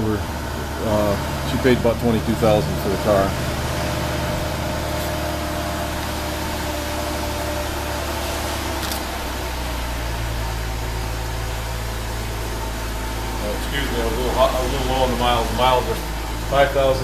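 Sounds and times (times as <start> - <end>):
mechanical hum: 0.0 - 17.0.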